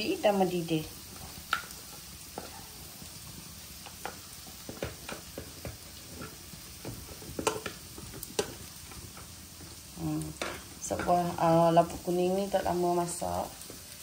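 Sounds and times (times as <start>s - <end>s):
faint hiss of cooking: 0.0s - 14.0s
utensil scraping and clinking on pot: 3.8s - 9.3s, 10.3s - 11.6s.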